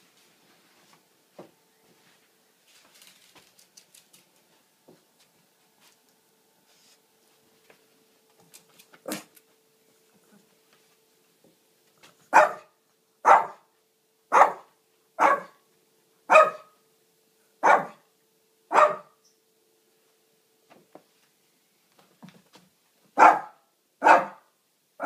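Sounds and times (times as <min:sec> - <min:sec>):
dog barking: 0:12.3 - 0:13.7, 0:14.3 - 0:15.6, 0:16.3 - 0:16.8, 0:17.6 - 0:18.0, 0:18.7 - 0:19.2, 0:23.2 - 0:24.5.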